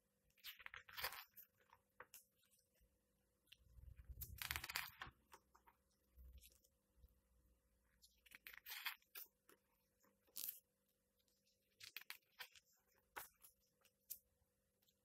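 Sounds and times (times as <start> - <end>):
book pages turning: 3.9 - 5.5.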